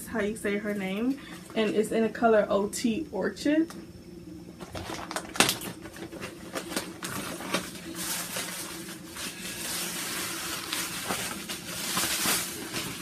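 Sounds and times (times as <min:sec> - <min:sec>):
plastic packaging crinkling: 0:04.6 - 0:13.0.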